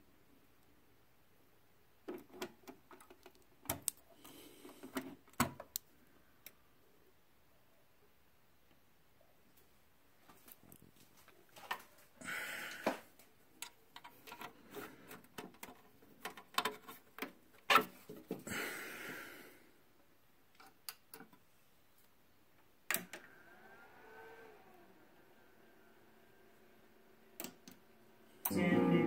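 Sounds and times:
cable plugs clicking into sockets: 0:02.1 - 0:04.0, 0:27.4 - 0:27.8.

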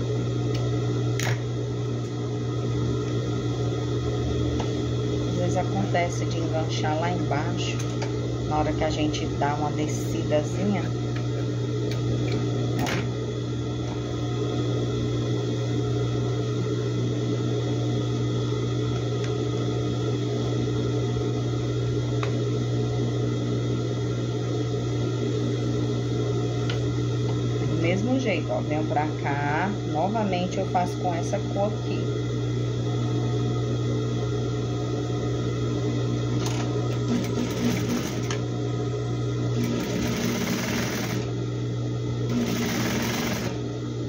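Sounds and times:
low mechanical hum: 0:00.0 - 0:44.0
sewing machine stitching: 0:36.4 - 0:38.4, 0:39.6 - 0:41.3, 0:42.3 - 0:43.6.

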